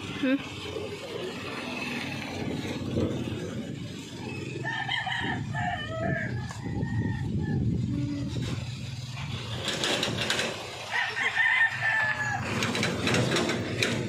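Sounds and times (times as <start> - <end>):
rooster crowing: 4.6 - 7.8, 10.9 - 12.8.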